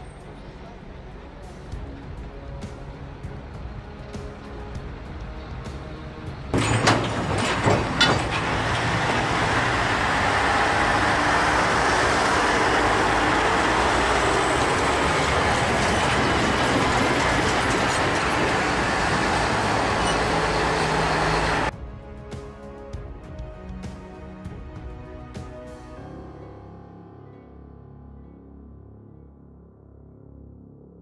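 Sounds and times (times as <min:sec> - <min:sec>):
heavy trucks driving past: 0:04.4 - 0:21.7.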